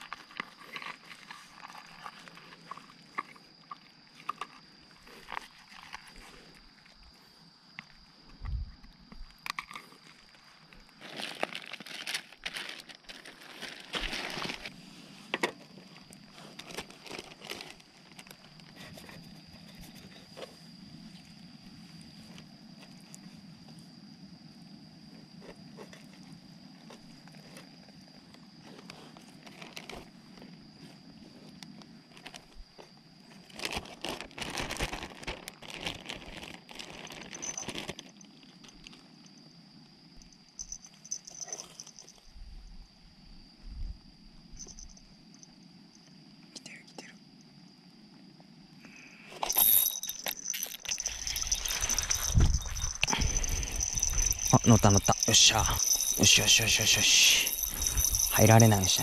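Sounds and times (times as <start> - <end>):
plastic bag crinkling: 11.0 - 14.7, 16.6 - 18.3, 33.5 - 39.0, 49.4 - 59.0.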